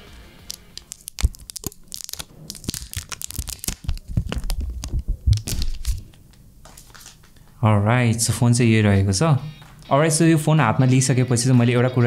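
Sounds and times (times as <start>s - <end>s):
plastic film crackling peeled off: 0.4s - 7.5s.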